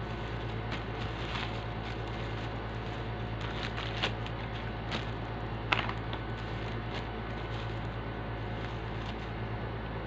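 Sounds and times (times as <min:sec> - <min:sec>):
low hum and hiss: 0:00.0 - 0:10.0
plastic bottle clicks and rustles: 0:03.4 - 0:07.9.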